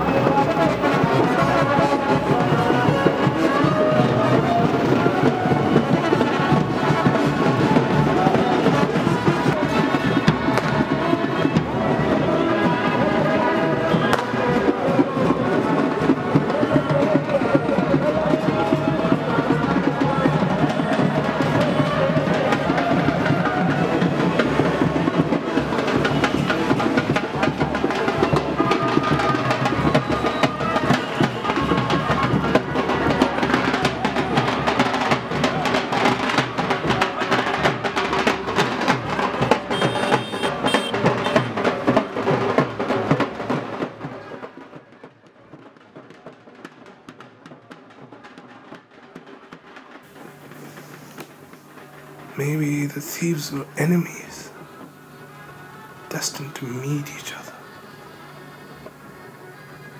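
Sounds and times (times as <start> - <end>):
brisk dense drumming: 0.0 - 44.7
brass band playing: 39.4 - 41.8.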